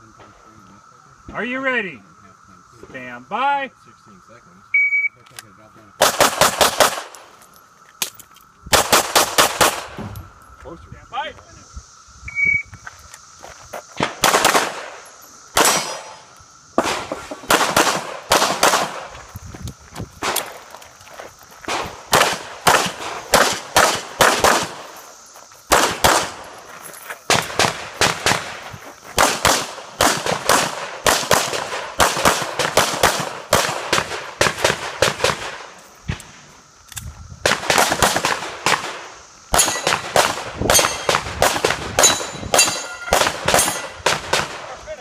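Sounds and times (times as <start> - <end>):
pistol shots: 6.0 - 7.2, 8.7 - 10.0, 14.0 - 19.1, 21.7 - 24.9, 25.7 - 26.4, 27.3 - 28.6, 29.2 - 35.7, 37.5 - 44.7.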